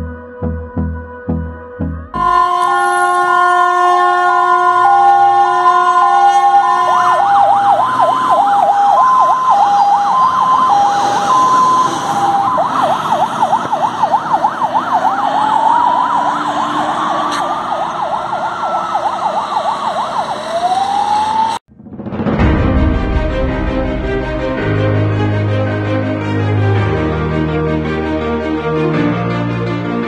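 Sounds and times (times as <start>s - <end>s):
rising and falling siren wail: 0.0s - 21.7s
two-tone hi-lo siren: 2.0s - 21.6s
fast yelping siren: 2.2s - 21.6s.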